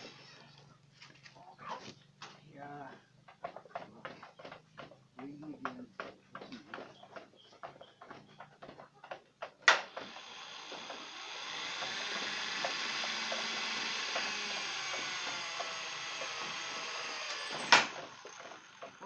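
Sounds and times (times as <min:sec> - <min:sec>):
power drill boring through metal: 0:09.8 - 0:19.0.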